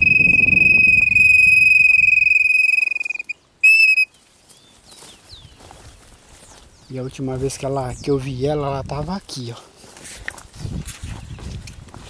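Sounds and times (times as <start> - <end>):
bird-call whistle: 0.0 - 4.2.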